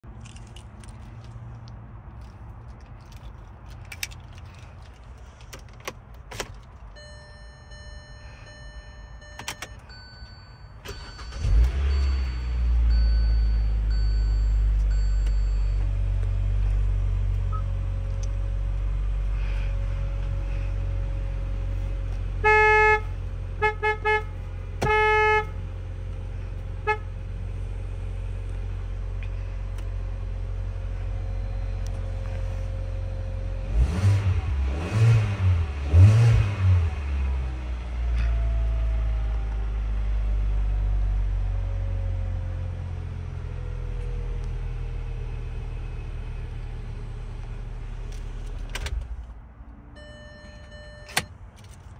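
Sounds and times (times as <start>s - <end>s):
car horn honking: 10.9s - 12.7s, 22.4s - 25.7s, 26.8s - 27.2s.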